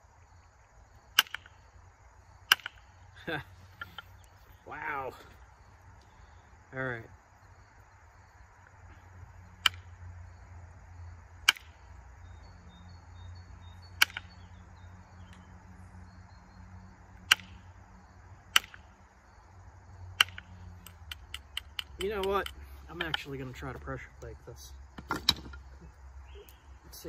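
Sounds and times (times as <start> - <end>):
antler striking flint: 1.1 - 1.6, 2.4 - 2.9, 9.6 - 9.9, 11.4 - 11.8, 14.0 - 14.4, 17.2 - 17.6, 18.5 - 18.9, 20.2 - 23.7, 24.9 - 25.8.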